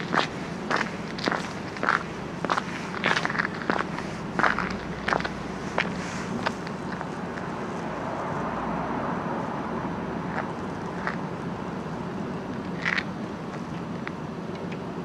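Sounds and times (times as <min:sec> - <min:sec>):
car passing: 0:00.0 - 0:13.7.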